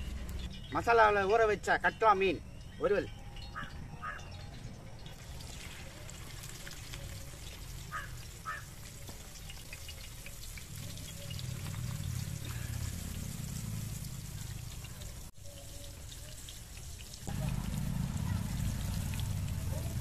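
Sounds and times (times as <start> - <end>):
bird calls: 0.0 - 13.0
hot oil sizzling and crackling: 5.1 - 20.0.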